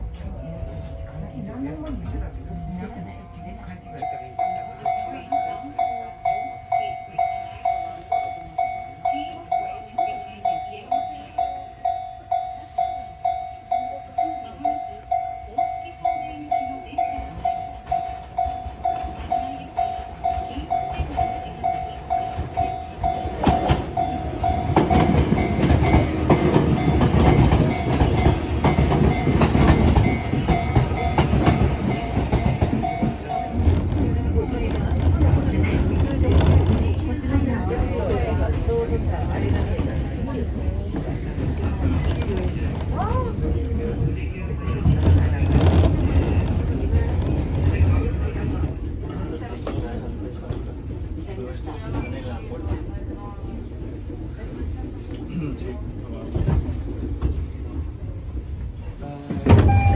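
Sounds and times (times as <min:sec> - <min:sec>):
train rumble and wheel noise: 0:00.0 - 0:59.9
level crossing bell ringing: 0:02.7 - 0:33.8.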